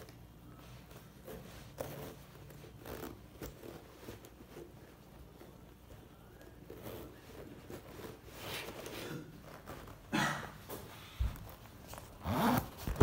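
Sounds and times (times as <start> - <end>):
zipper rasps and leather rustles: 1.0 - 5.8, 6.4 - 10.1, 11.4 - 13.0.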